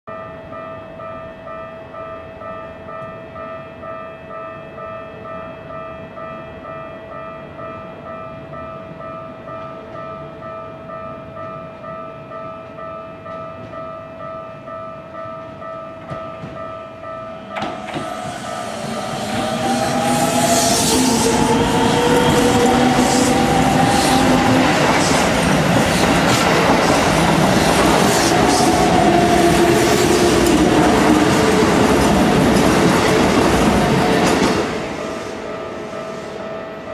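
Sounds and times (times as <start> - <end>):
level-crossing alarm bell: 0.1 - 36.9
train passing: 15.4 - 36.9.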